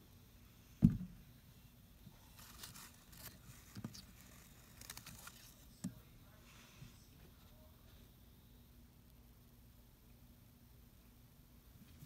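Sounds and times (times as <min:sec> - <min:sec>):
faint crinkling: 0:01.4 - 0:09.3.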